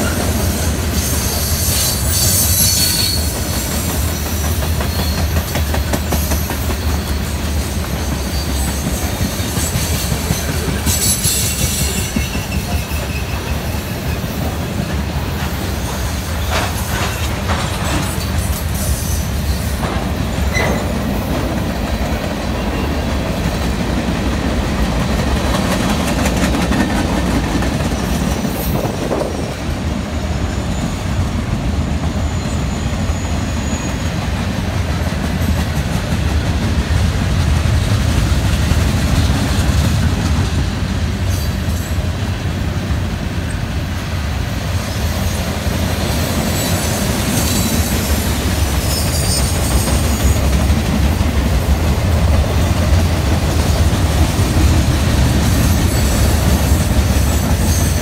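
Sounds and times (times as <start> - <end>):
high-pitched wheel squeal: 0.0 - 14.2, 32.2 - 34.1, 46.5 - 50.4
freight train wheels rumbling: 0.0 - 58.0.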